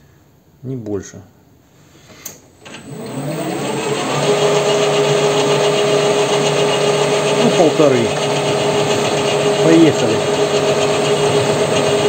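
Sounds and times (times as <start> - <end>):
lathe motor whining: 2.6 - 12.0.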